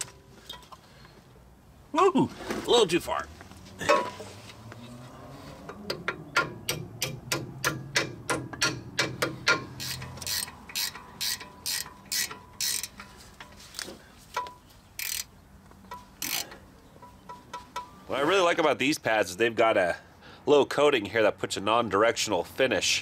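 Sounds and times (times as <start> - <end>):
ratchet wrench clicking: 6.0 - 13.1, 15.0 - 15.3, 15.9 - 16.6.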